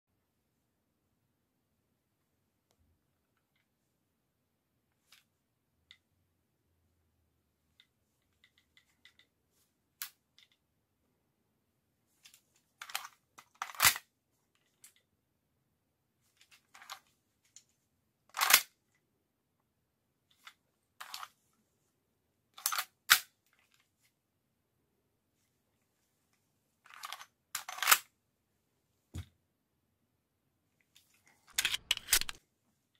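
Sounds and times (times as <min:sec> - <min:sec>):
pistol magazine and slide clicks: 0:31.5 - 0:32.4.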